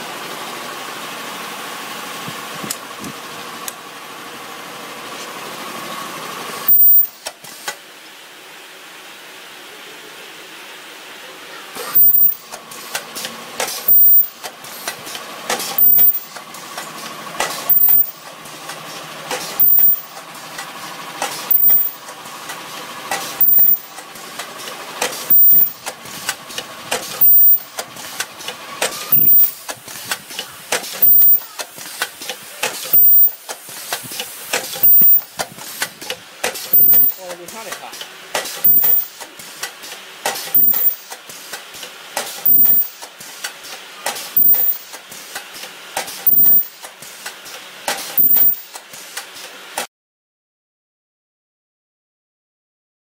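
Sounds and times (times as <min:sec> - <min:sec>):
shrill high-pitched welding burst: 0:06.6 - 0:07.2, 0:11.8 - 0:12.5, 0:13.8 - 0:14.4, 0:15.7 - 0:16.3, 0:17.6 - 0:18.2, 0:19.5 - 0:20.1, 0:21.4 - 0:22.0, 0:23.3 - 0:23.9, 0:25.2 - 0:25.8, 0:27.1 - 0:27.7, 0:29.0 - 0:29.7, 0:30.8 - 0:32.1, 0:32.8 - 0:33.5, 0:34.4 - 0:35.4, 0:36.6 - 0:37.3, 0:38.5 - 0:39.2, 0:40.4 - 0:41.1, 0:42.4 - 0:43.0, 0:44.2 - 0:44.9, 0:46.2 - 0:46.8, 0:48.1 - 0:48.7
mechanical clatter: 0:11.8 - 0:49.9.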